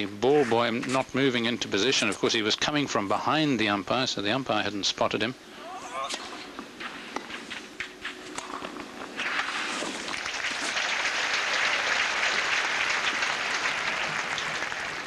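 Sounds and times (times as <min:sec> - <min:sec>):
crowd applauding: 0:10.1 - 0:15.0.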